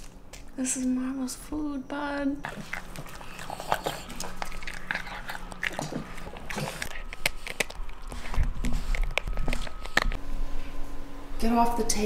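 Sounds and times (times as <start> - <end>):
dog crunching chew stick: 2.4 - 10.2
dog eating with wet smacking: 2.4 - 10.2.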